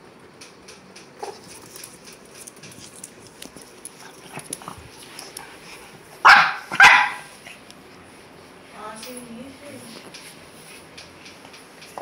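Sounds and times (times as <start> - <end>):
faint clicking and rustling: 0.2 - 6.1, 8.9 - 12.0
dog barking: 6.2 - 7.3.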